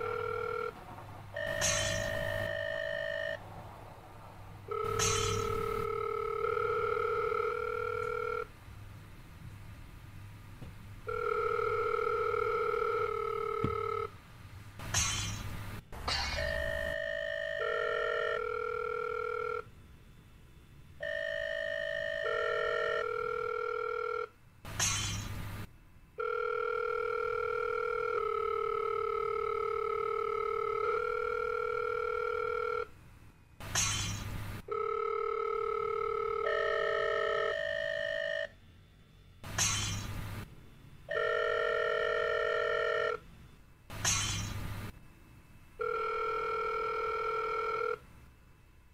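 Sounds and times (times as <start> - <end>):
telephone bell ringing: 0.0 - 0.8, 1.4 - 3.4, 4.7 - 8.5, 11.1 - 14.1, 16.4 - 19.7, 21.0 - 24.3, 26.2 - 32.9, 34.7 - 38.5, 41.1 - 43.2, 45.8 - 48.0
held electronic tones: 1.3 - 3.4, 4.6 - 8.5.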